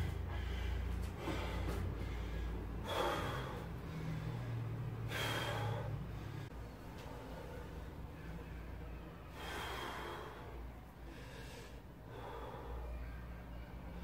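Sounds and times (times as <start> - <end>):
man breathing hard: 0.0 - 14.0.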